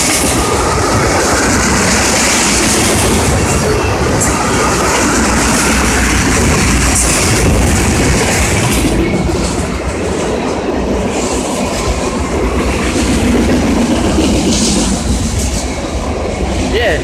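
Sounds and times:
steel wheels clattering on rails: 0.0s - 16.8s
freight train rumbling past: 0.0s - 17.0s.

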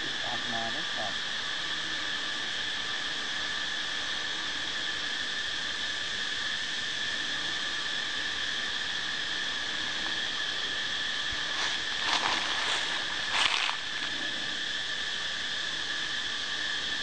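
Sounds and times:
high-pitched insect drone: 0.0s - 17.0s
rustling scrapes: 11.5s - 14.2s.

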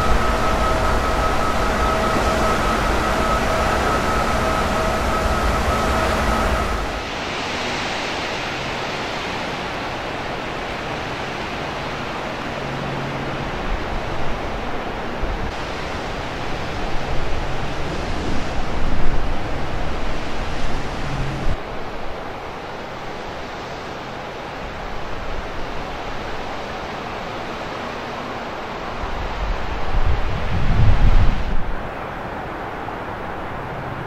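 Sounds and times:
strong wind gusting on microphone: 0.0s - 23.1s, 28.7s - 34.0s.

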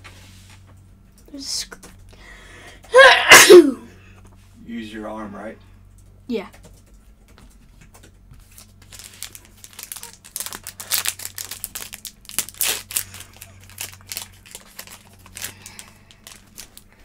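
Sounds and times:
foil card pack crinkling: 8.4s - 17.0s.

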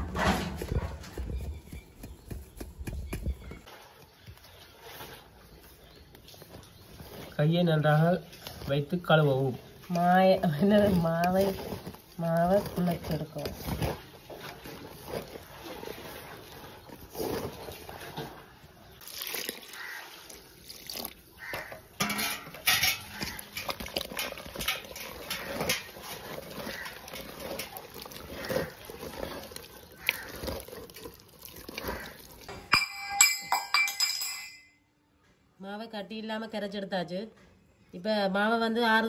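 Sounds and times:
hand squelching through wet batter: 1.6s - 32.5s
metallic clinks: 32.5s - 34.8s.

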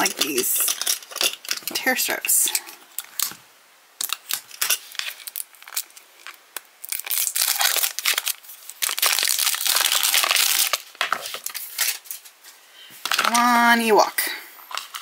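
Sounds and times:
plastic wrapper crinkling: 0.0s - 2.1s, 4.0s - 13.6s, 14.2s - 15.0s.

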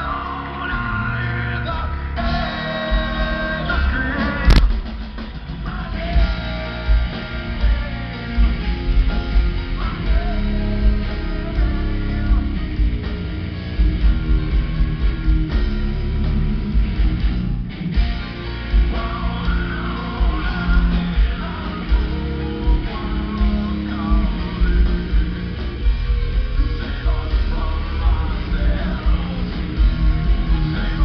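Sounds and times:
wavering vocals: 0.0s - 4.6s, 18.7s - 31.0s
heavy metal band playing live: 0.0s - 31.0s.

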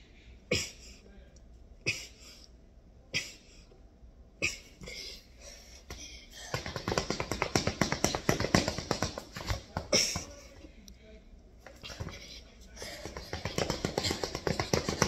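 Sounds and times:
footsteps pattering on tile: 12.9s - 15.0s.

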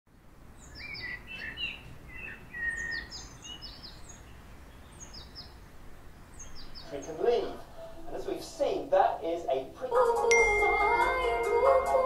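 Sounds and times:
faint low background noise: 0.1s - 12.0s
small birds chirping: 0.4s - 8.4s.

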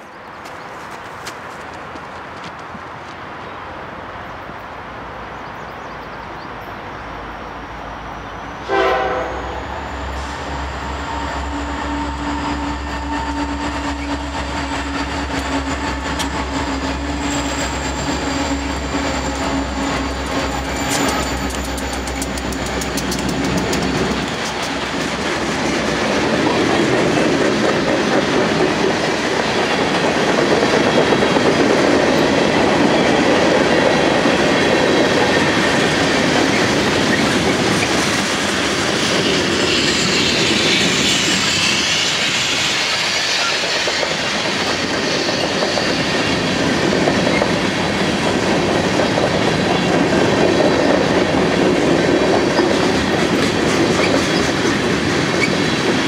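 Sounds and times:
train wheels on track: 0.0s - 4.6s, 5.4s - 56.0s
diesel locomotive engine rumble: 3.4s - 56.0s
high-pitched hissing: 38.8s - 46.3s.

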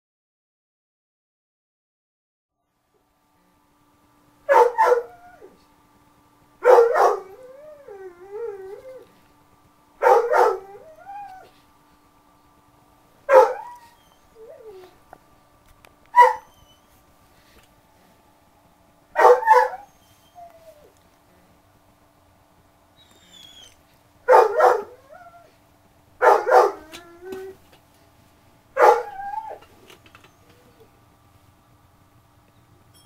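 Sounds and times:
man howling like a dog: 26.3s - 27.6s, 28.8s - 29.6s.

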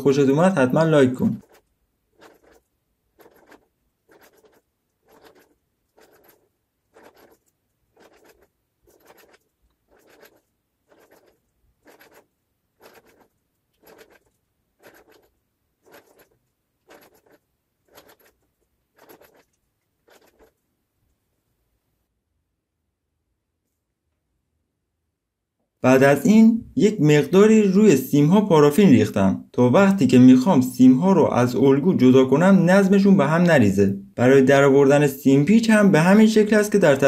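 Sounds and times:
wire rasping around coil former: 1.1s - 20.6s.

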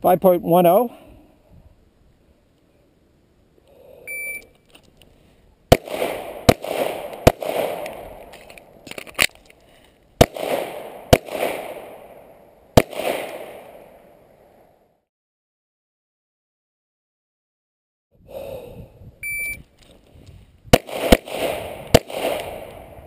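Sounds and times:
shot timer beep: 4.1s - 4.5s, 19.2s - 19.6s
pistol shots echoing: 5.7s - 8.3s, 10.2s - 14.2s, 20.7s - 23.0s.

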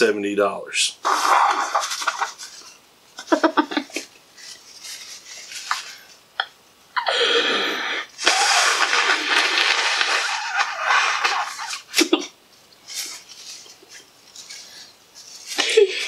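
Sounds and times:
person blowing nose: 1.0s - 2.3s, 7.0s - 12.2s
child giggling: 3.2s - 4.1s.

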